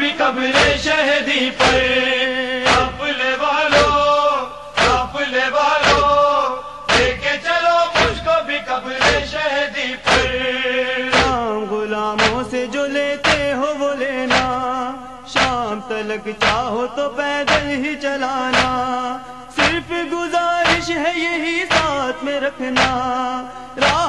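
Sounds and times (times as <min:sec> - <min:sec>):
person chanting a lament: 0:00.0 - 0:24.0
chest-beating thumps: 0:00.6 - 0:00.9, 0:01.6 - 0:02.0, 0:02.6 - 0:03.1, 0:03.7 - 0:05.2, 0:05.8 - 0:08.3, 0:08.9 - 0:09.4, 0:10.0 - 0:10.4, 0:11.1 - 0:11.5, 0:12.2 - 0:12.6, 0:13.2 - 0:13.6, 0:14.3 - 0:14.7, 0:15.3 - 0:15.8, 0:16.4 - 0:16.8, 0:17.4 - 0:17.9, 0:18.5 - 0:18.9, 0:19.6 - 0:20.0, 0:20.6 - 0:21.0, 0:21.7 - 0:22.0, 0:22.7 - 0:23.1, 0:23.8 - 0:24.0.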